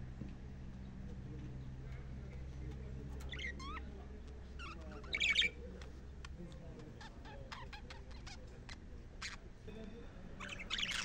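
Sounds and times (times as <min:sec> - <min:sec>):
budgerigars chirping: 0:03.2 - 0:09.5, 0:10.4 - 0:11.0
harsh bird squawk: 0:03.3 - 0:03.9, 0:04.6 - 0:05.6, 0:10.4 - 0:11.0.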